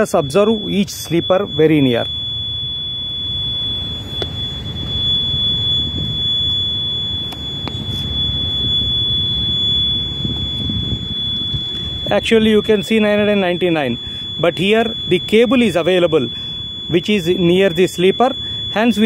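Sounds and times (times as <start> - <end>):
high-pitched steady tone: 0.0 - 19.0
low rumble: 1.5 - 15.1.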